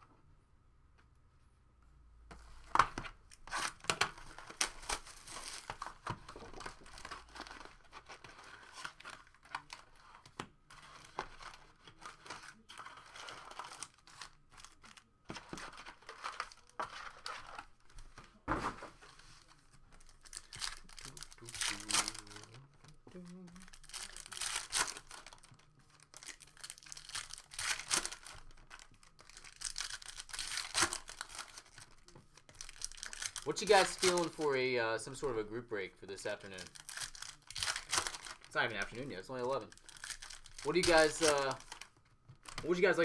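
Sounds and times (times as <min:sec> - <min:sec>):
foil packs crinkling: 0:03.5 - 0:10.2, 0:19.4 - 0:22.7, 0:23.6 - 0:34.7, 0:36.2 - 0:43.0
wrapping tearing: 0:10.8 - 0:17.7, 0:19.9 - 0:34.6, 0:36.4 - 0:43.0.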